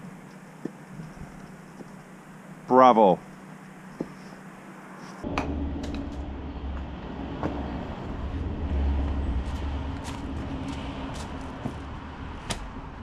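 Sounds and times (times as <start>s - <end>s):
loader engine idling: 5.2s - 13.0s.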